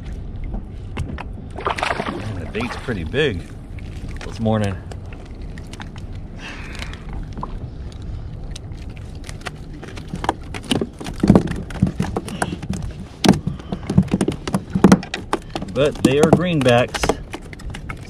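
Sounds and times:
steady low rumble: 0:00.0 - 0:18.0
sharp irregular knocks and clicks: 0:09.9 - 0:18.0.

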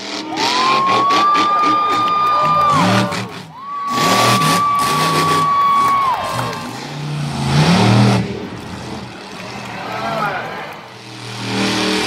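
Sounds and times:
crowd cheering: 0:00.0 - 0:12.0
monster truck engine revving: 0:00.0 - 0:12.0.

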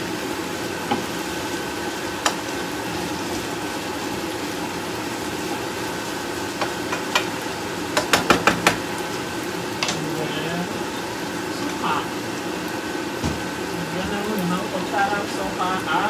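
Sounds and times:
food sizzling in a frying pan: 0:00.0 - 0:16.0
spatula clicking on a pan: 0:06.6 - 0:07.3, 0:08.0 - 0:08.8
spatula tapping against a pan: 0:06.6 - 0:07.3, 0:07.9 - 0:08.8.

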